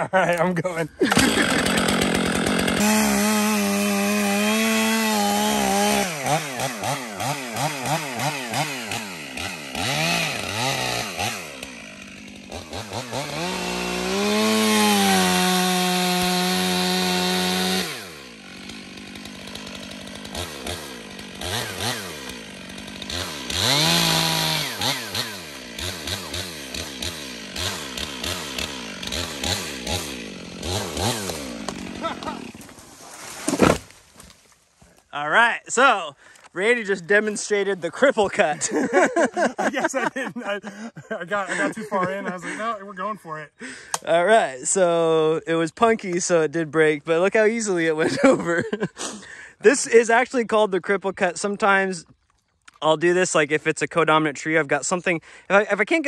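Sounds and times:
chainsaw cutting wood: 0:01.0 - 0:35.1, 0:36.3 - 0:44.2.

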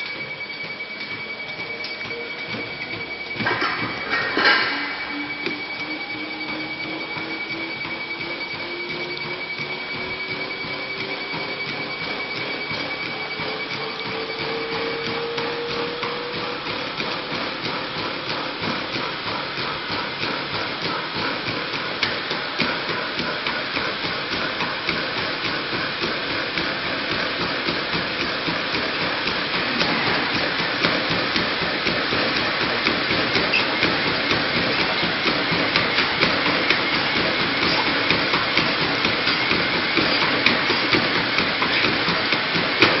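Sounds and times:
running footsteps: 0:00.0 - 0:43.0.

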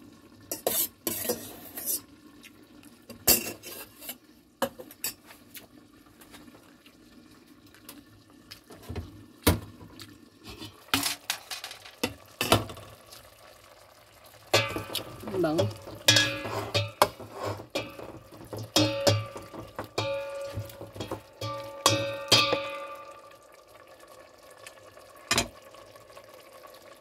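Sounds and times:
pot and lid clattering: 0:10.5 - 0:12.9, 0:14.5 - 0:23.3.

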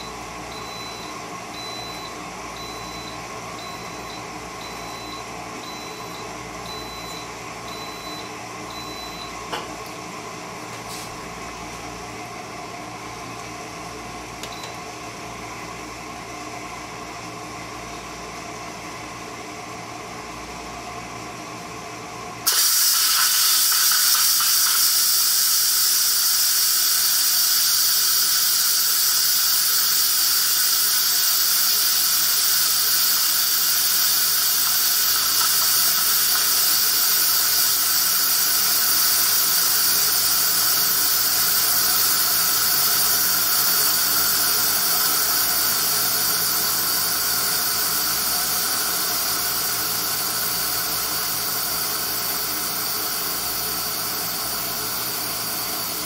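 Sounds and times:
pressure cooker venting steam: 0:22.4 - 0:56.0.

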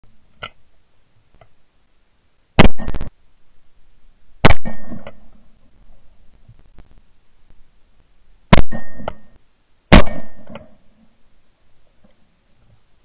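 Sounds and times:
shotgun shots: 0:02.6 - 0:03.1, 0:04.4 - 0:05.2, 0:08.5 - 0:09.2, 0:09.9 - 0:10.6.

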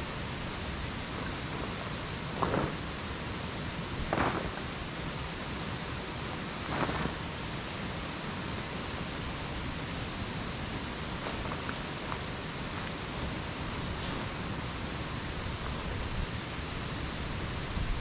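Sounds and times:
rushing outdoor background noise: 0:00.0 - 0:18.0
tent fabric rustling on gravel: 0:00.7 - 0:05.1, 0:06.4 - 0:07.7, 0:10.7 - 0:16.4.

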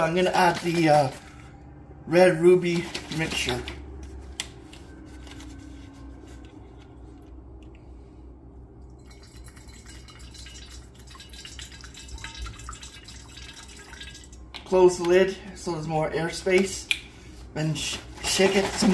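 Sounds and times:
steady low hum: 0:03.7 - 0:18.2
juice trickling through funnel: 0:08.7 - 0:14.8.

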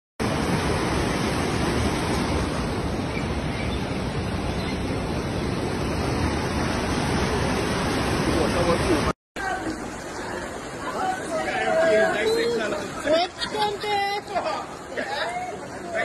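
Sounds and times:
floodwater rushing: 0:00.2 - 0:16.0.

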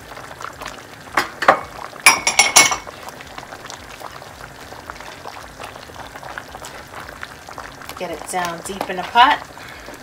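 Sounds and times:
stew bubbling in a pot: 0:00.0 - 0:10.0
glass bowl clinking: 0:01.4 - 0:02.9.

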